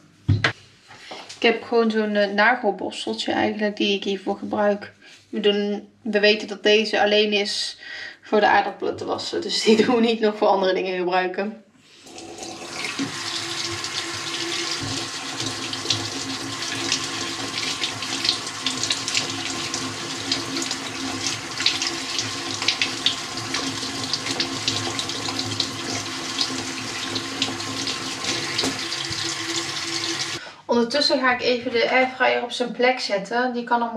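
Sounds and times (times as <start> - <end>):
kitchen tap running into sink: 12.0 - 30.4
nail brush scrubbing potatoes: 13.0 - 30.4.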